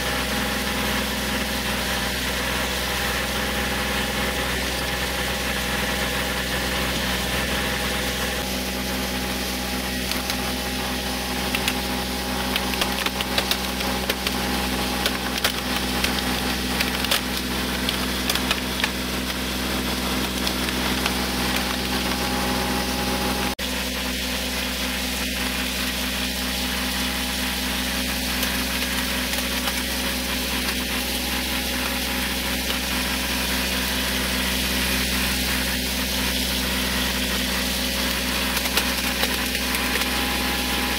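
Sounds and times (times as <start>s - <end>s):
diesel tractor engine idling: 0.0s - 40.9s
plastic toy car cracking and crunching: 11.4s - 19.4s, 20.0s - 22.2s, 38.1s - 40.7s.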